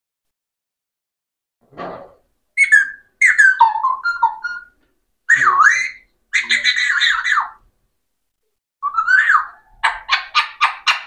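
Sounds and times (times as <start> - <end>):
parakeet whistling: 2.6 - 7.6, 8.8 - 11.0.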